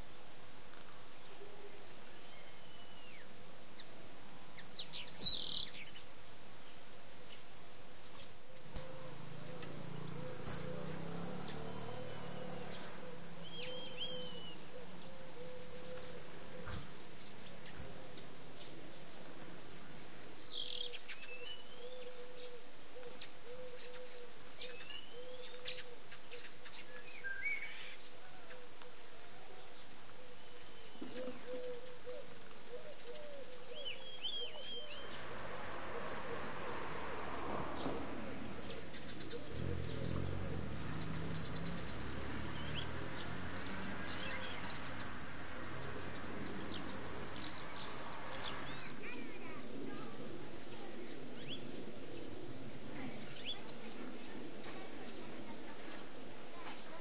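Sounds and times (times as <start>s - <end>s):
small birds chirping: 0.0s - 57.0s.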